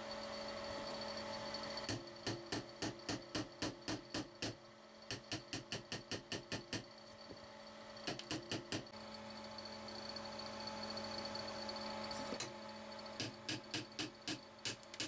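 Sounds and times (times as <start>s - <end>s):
steady hum: 0.0s - 5.5s.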